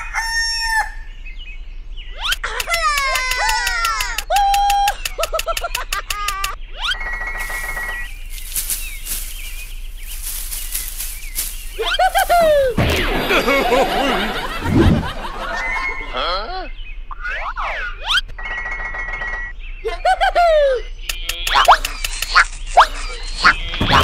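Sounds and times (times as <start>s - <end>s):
cartoon bird chirps: 2.1s - 8.1s, 11.8s - 13.5s, 17.1s - 18.4s, 21.0s - 24.0s
rustling: 7.4s - 13.1s
cartoon thud: 12.7s - 13.8s.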